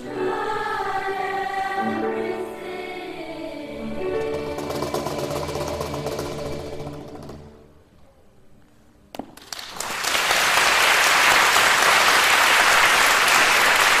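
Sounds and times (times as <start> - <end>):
audience applause: 9.4 - 14.0.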